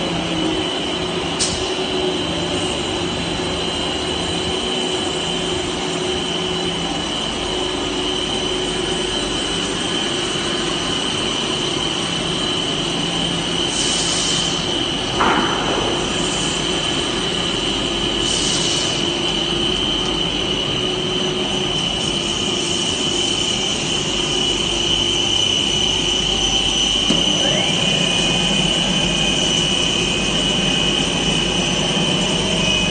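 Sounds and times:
high steady whine: 0.0s - 32.9s
machinery drone: 0.0s - 32.9s
whine rising in pitch: 19.2s - 32.9s.

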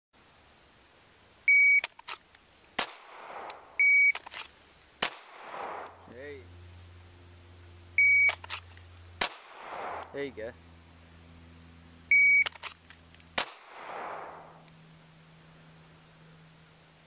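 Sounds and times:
shot timer beep: 3.8s - 4.2s, 8.0s - 8.4s, 12.1s - 12.5s
handgun shot: 9.2s - 10.2s, 13.4s - 14.5s.

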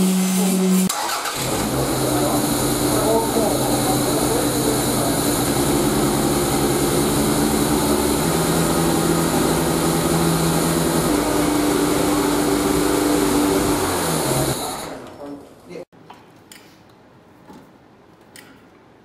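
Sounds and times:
car engine revving in steps: 0.0s - 15.1s.

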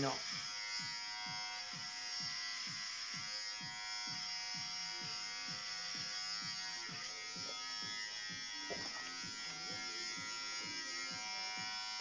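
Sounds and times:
electric hair clippers buzzing: 0.0s - 12.0s.

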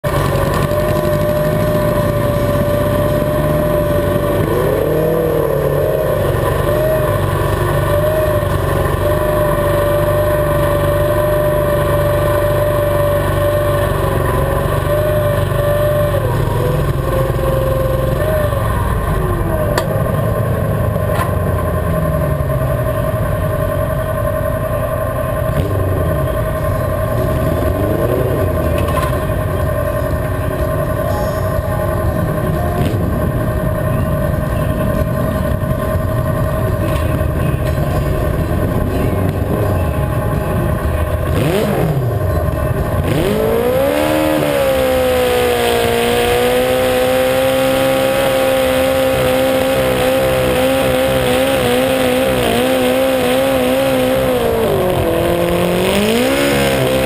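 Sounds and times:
tractor engine running: 0.0s - 57.0s.

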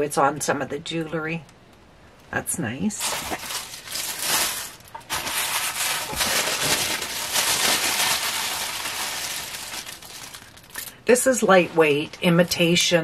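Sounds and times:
tissue paper rustling: 3.0s - 10.8s.

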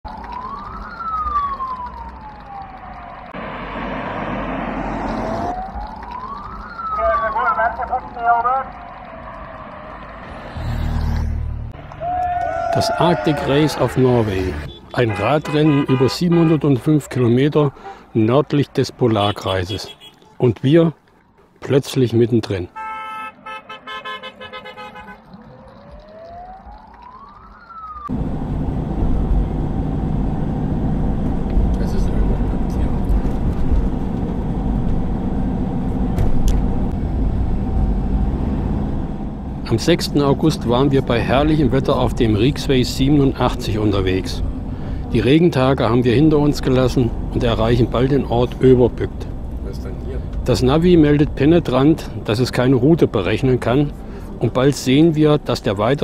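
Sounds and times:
vehicle horns tooting: 12.0s - 17.0s, 19.1s - 20.4s, 22.7s - 25.2s
road and engine noise in cab: 28.1s - 56.0s.

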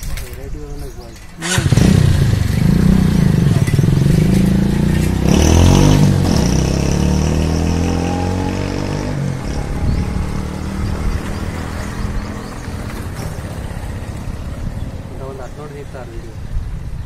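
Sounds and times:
vehicle engine running: 1.4s - 7.7s.

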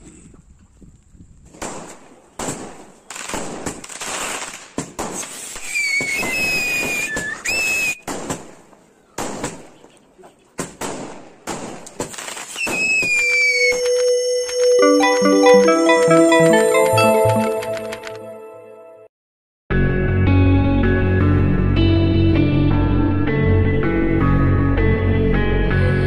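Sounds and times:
firework fountain hissing: 5.2s - 8.0s
high sliding whistles: 5.3s - 8.0s, 12.5s - 15.0s.

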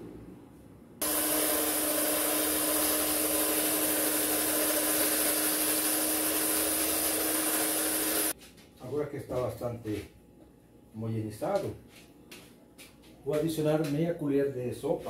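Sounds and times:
electric mixer humming: 1.0s - 8.4s.

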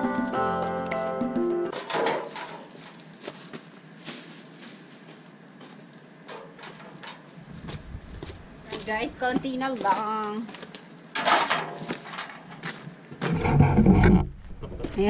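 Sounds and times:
bag of leaves rustling: 1.7s - 5.2s
low rumble: 7.5s - 9.2s.

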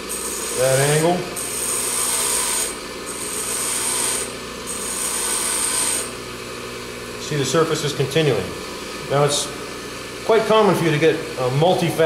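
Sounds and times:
grinder motor hum: 0.0s - 12.0s.

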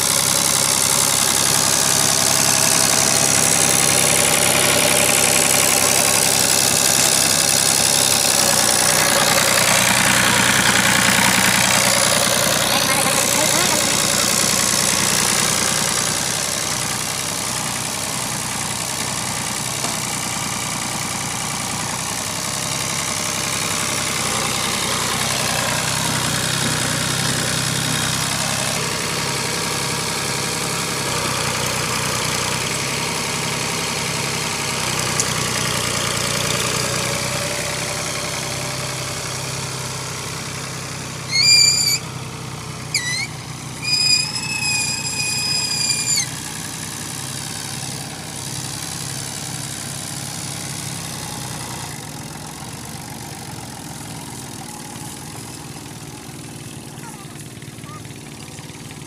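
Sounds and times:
tractor diesel engine running: 0.0s - 59.0s
short high chirps: 41.3s - 42.0s.

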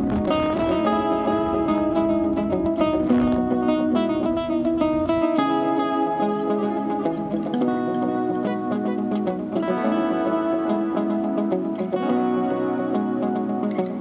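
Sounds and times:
plucked string instrument music: 0.0s - 14.0s.

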